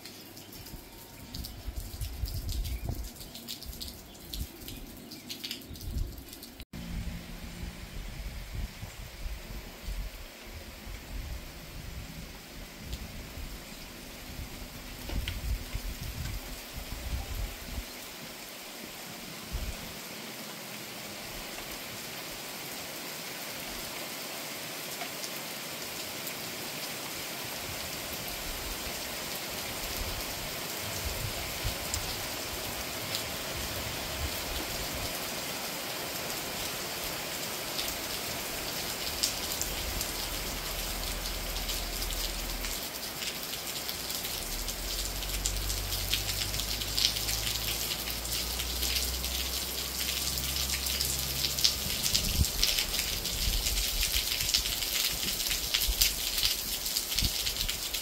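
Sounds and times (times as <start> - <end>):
raindrops pattering: 0.0 - 6.7, 12.6 - 18.7, 27.8 - 58.0
rain falling: 0.0 - 58.0.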